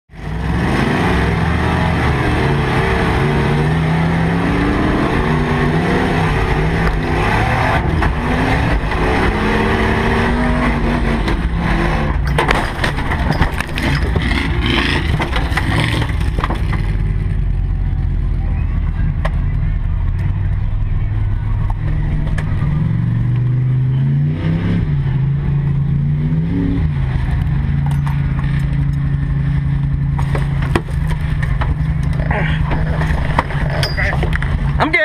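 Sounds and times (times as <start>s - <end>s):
low rumble: 0.1s - 34.8s
engine revving: 0.1s - 35.0s
knocks and clatter of vehicle rolling: 6.4s - 23.8s, 27.2s - 35.0s
windshield shattering: 12.3s - 17.0s.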